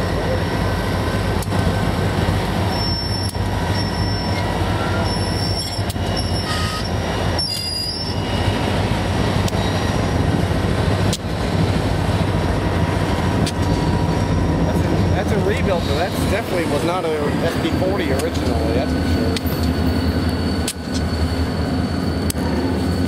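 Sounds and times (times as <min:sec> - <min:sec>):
train clanks: 0:00.0 - 0:23.0
train wheels rumbling on rails: 0:00.0 - 0:23.0
faint high wheel squeals: 0:02.6 - 0:08.8, 0:15.2 - 0:23.0.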